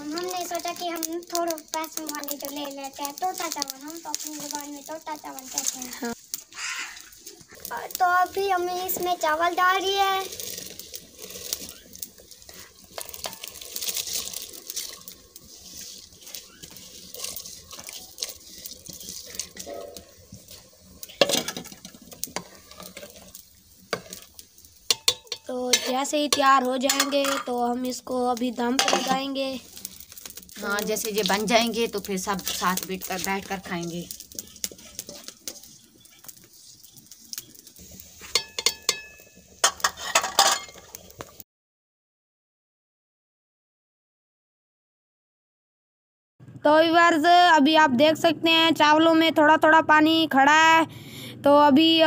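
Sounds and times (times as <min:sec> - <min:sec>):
rice splashing into boiling water: 0:00.0 - 0:41.4
metal bowl and pot clinking: 0:11.4 - 0:15.2, 0:16.1 - 0:27.7, 0:28.7 - 0:29.4, 0:38.2 - 0:40.9.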